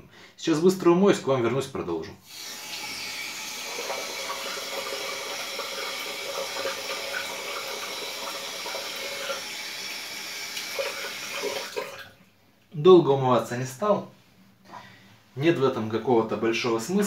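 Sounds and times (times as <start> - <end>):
tap water running into sink: 2.3 - 12.2.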